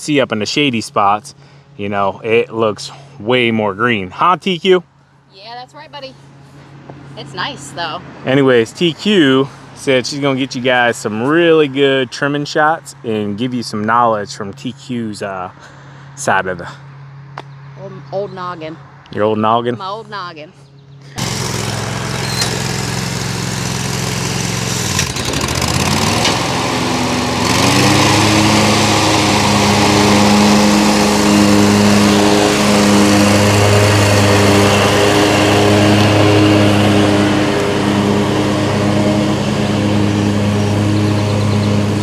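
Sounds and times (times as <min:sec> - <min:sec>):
lawn mower engine running: 0:20.6 - 0:42.0.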